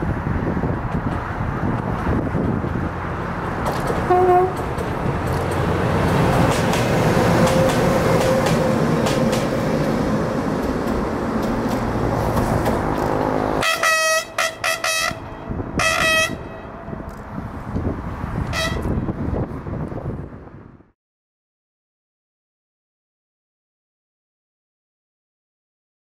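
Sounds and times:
train wheels rumbling on rail: 0.0s - 20.4s
train horn blasts: 4.1s - 4.7s, 13.6s - 17.1s, 18.4s - 19.0s.

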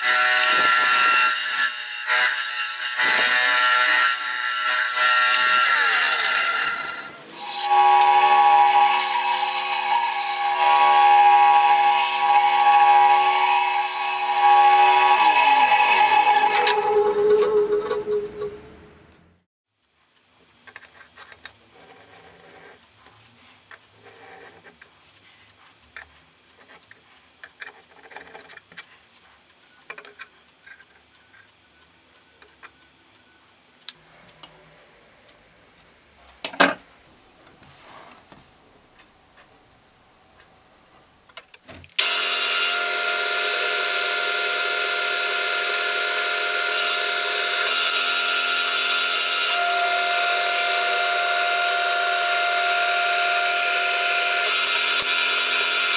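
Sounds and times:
drill press boring through steel: 0.0s - 18.6s, 42.0s - 55.9s.

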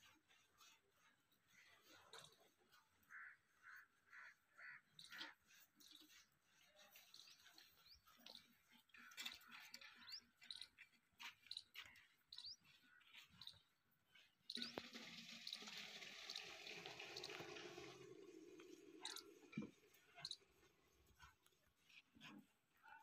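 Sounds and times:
milk pouring into metal can: 14.5s - 20.7s
faint chirps: 19.0s - 19.4s.

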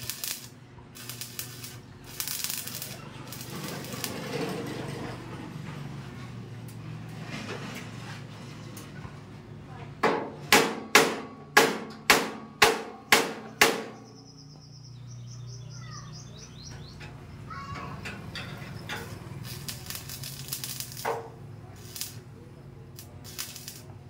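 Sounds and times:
hammer striking metal frame: 10.0s - 14.1s.

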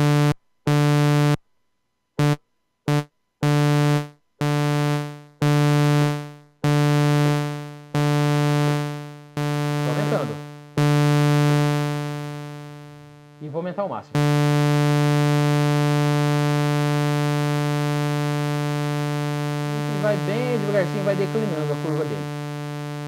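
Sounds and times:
synthesizer sustained notes: 19.2s - 22.5s.

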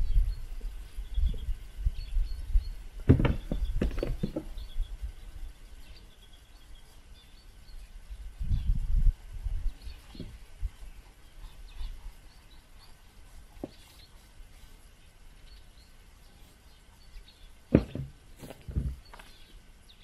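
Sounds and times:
faint bird chirps: 0.0s - 17.7s
low thump: 3.0s - 4.4s, 17.7s - 19.0s.

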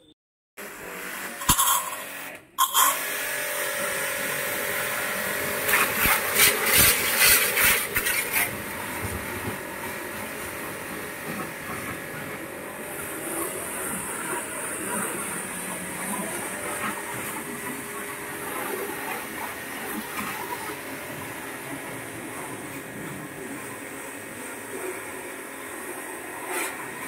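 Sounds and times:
pressure washer motor humming: 0.6s - 26.9s
water jet hissing: 4.2s - 24.6s.

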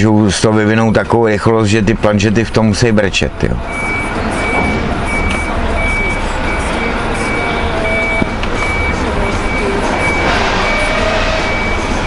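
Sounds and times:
truck engine idling: 0.0s - 12.0s
reversing alarm beeping: 3.1s - 12.0s.

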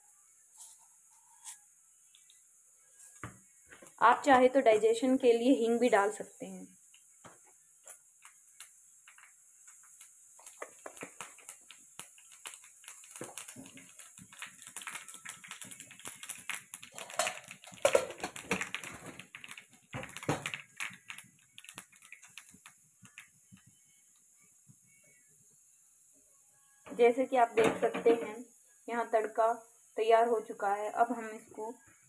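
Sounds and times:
seeds popping in hot oil: 1.4s - 26.0s.

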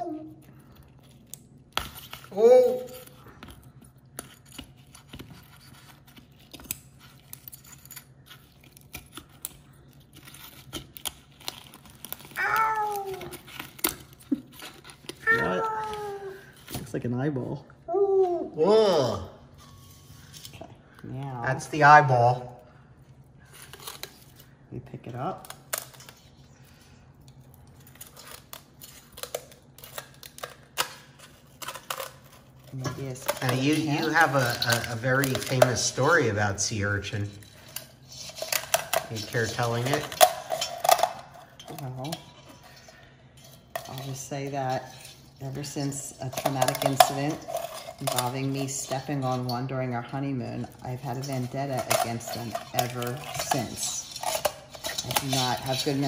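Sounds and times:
shears crunching through shell: 0.9s - 15.6s, 27.3s - 56.0s.

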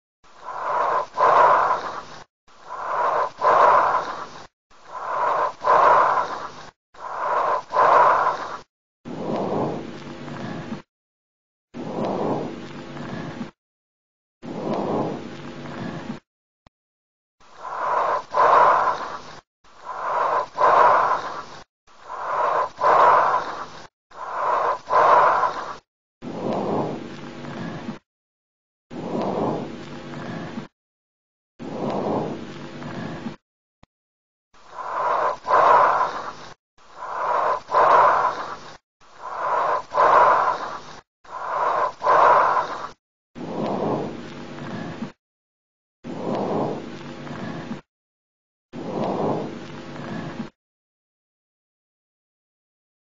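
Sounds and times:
lung breathing sounds: 0.2s - 10.9s, 11.8s - 13.6s, 14.4s - 16.2s, 17.4s - 28.0s, 28.9s - 30.7s, 31.6s - 33.4s, 34.6s - 45.2s, 48.8s - 50.5s.

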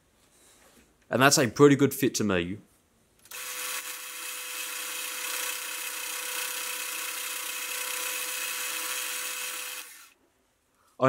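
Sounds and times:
lathe whining: 3.3s - 10.2s.

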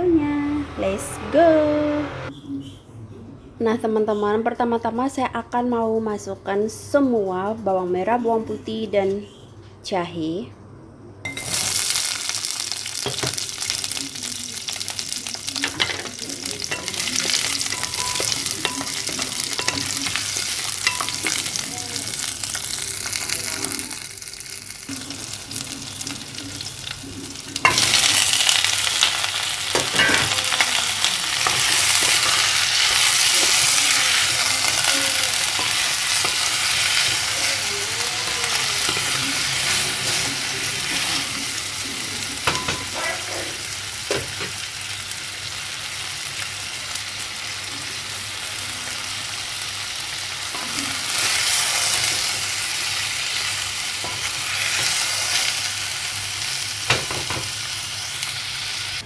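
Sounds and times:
food sizzling in hot oil: 11.3s - 59.0s.

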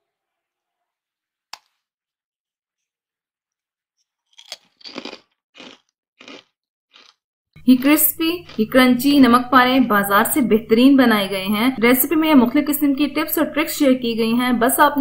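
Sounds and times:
crunching: 4.0s - 7.2s
fried snack snapping: 4.2s - 7.2s.

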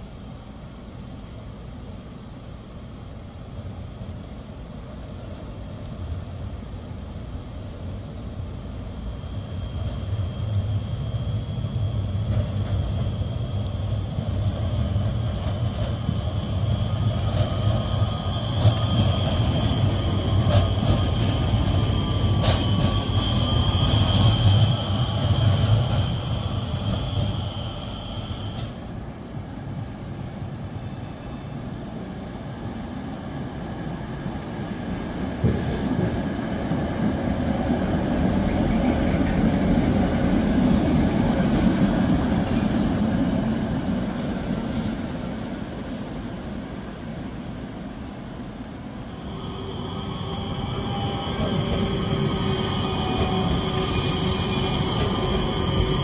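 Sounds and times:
tram rolling rumble: 0.0s - 56.0s
high-pitched tram squeal: 9.2s - 28.9s, 30.7s - 31.7s, 48.9s - 56.0s
approaching tram rumble: 48.4s - 56.0s.

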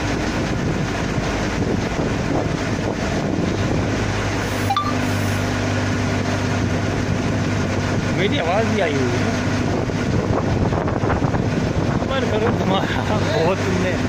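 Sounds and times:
wind on microphone: 0.0s - 4.6s, 9.4s - 12.8s
machinery humming: 0.0s - 10.2s.

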